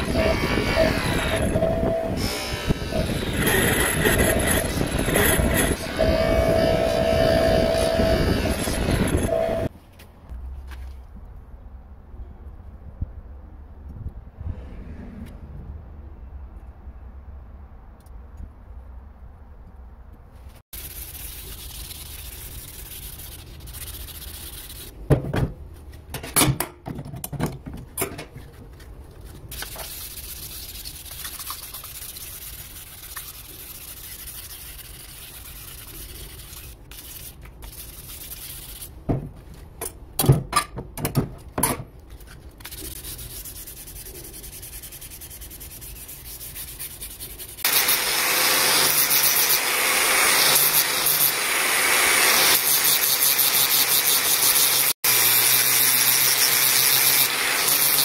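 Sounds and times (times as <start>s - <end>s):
angle grinder running: 0.0s - 9.7s, 47.7s - 58.0s
knife blade being scrubbed: 20.8s - 24.9s, 29.6s - 39.0s, 42.2s - 48.0s.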